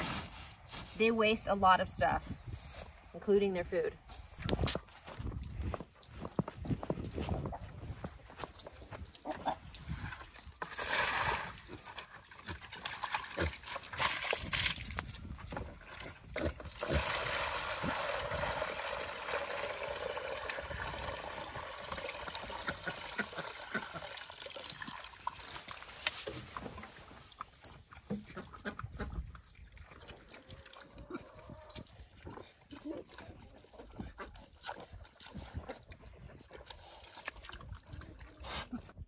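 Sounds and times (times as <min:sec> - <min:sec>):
water pouring into bucket: 0:10.6 - 0:15.1, 0:16.5 - 0:26.6.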